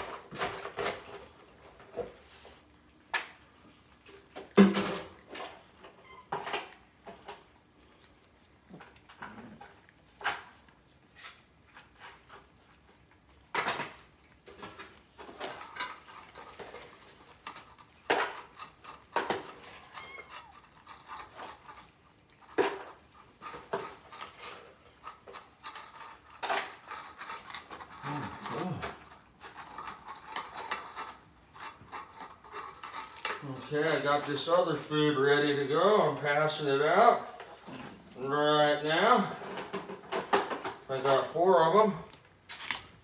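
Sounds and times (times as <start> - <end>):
metal cans and dishes clinking: 0.0 - 2.2, 4.1 - 7.5, 13.4 - 34.5, 38.9 - 42.9.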